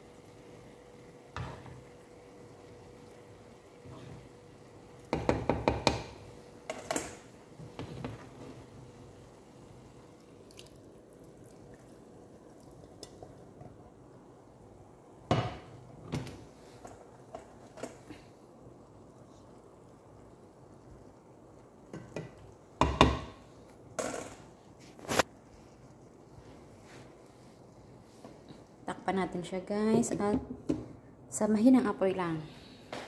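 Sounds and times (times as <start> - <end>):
utensil knocking on a pan: 5.1 - 6.2, 21.9 - 23.3.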